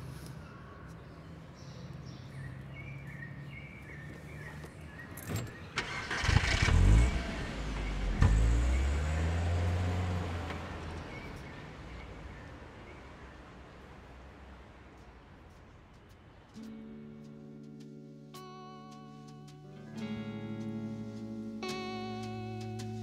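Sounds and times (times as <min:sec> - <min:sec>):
car engine starting and running: 0:05.6 - 0:12.0.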